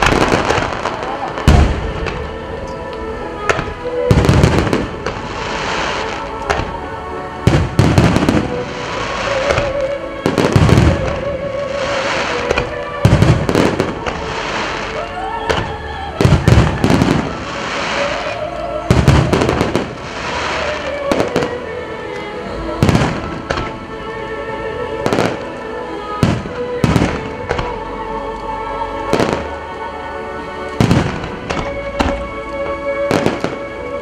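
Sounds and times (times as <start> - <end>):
firework shells booming: 0.0 - 2.3
firework crackling: 0.0 - 24.2, 24.8 - 27.9, 28.9 - 29.8, 30.7 - 34.0
music playing: 0.0 - 34.0.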